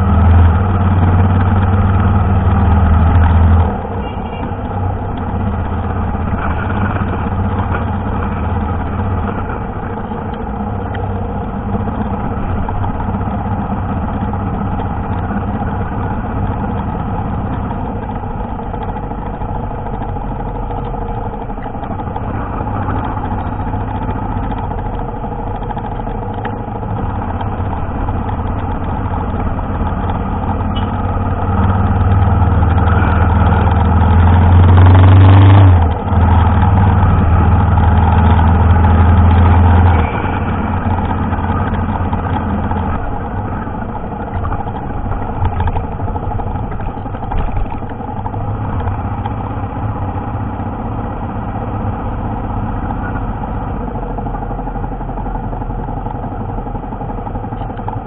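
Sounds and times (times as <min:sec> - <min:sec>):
motorcycle engine running: 0:00.0 - 0:58.0.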